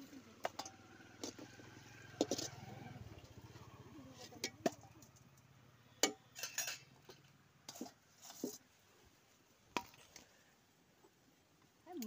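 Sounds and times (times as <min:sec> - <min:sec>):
metal cookware clinking: 0:00.4 - 0:01.5, 0:02.1 - 0:02.7, 0:06.0 - 0:07.9.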